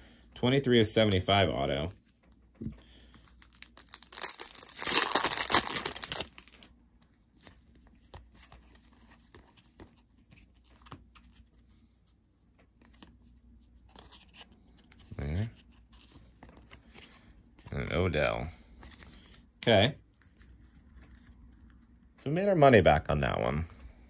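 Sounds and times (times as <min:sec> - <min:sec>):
foil wrapper crinkling and tearing: 0:03.4 - 0:06.7.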